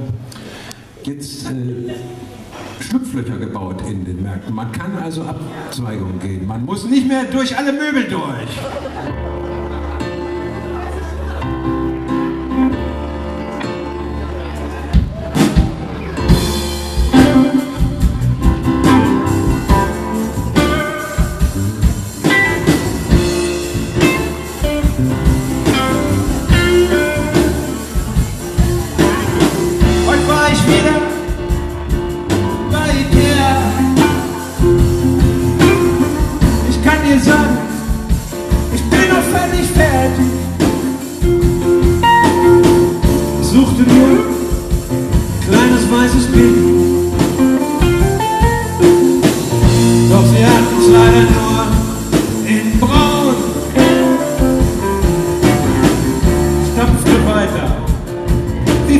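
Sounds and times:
drums: 6.6s - 58.9s
keyboards: 7.6s - 58.9s
bass guitar: 8.6s - 58.9s
electric guitar: 8.9s - 58.9s
man singing: 29.0s - 31.5s, 32.6s - 34.9s, 36.2s - 38.0s, 38.7s - 40.9s, 43.0s - 47.4s, 49.6s - 54.8s, 56.6s - 57.9s, 58.7s - 58.9s.

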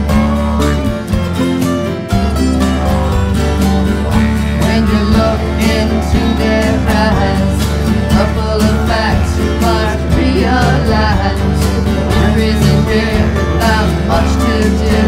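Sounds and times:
country band instrumental music: 0.0s - 15.0s.

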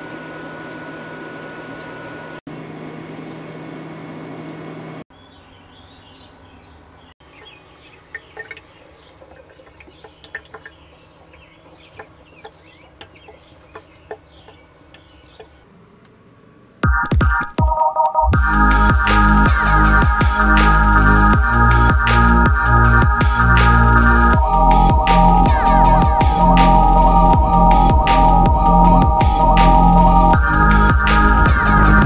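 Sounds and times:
birds chirping: 5.1s - 15.7s
steady hum: 18.4s - 32.0s.

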